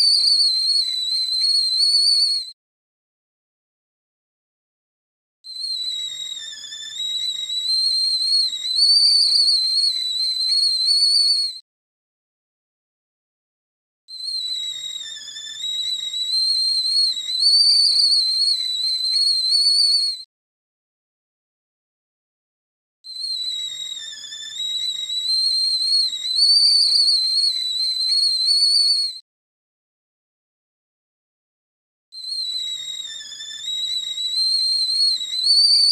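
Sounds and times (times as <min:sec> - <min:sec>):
kettle whistling: 0:00.0 - 0:02.6, 0:05.5 - 0:11.6, 0:14.2 - 0:20.3, 0:23.1 - 0:29.2, 0:32.2 - 0:35.9.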